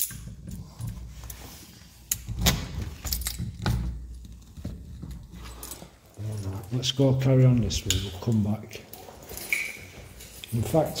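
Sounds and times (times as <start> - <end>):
keys jangling: 9.0 - 11.0.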